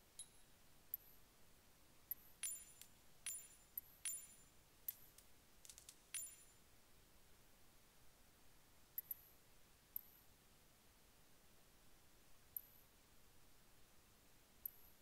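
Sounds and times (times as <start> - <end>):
sharp clicks and light clinks: 2.1 - 6.6, 9.0 - 9.3, 14.7 - 15.0.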